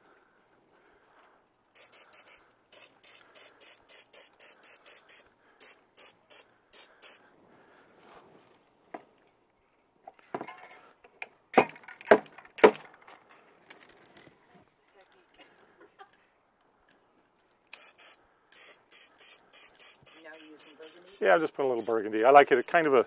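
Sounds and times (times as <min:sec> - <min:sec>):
spray can hissing bursts: 0:01.8 - 0:07.2, 0:17.7 - 0:22.9.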